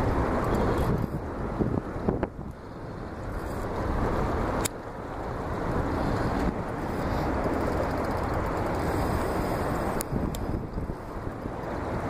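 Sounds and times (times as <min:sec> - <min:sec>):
wind buffeting microphone: 0:00.0 - 0:12.0
river water rushing: 0:02.6 - 0:12.0.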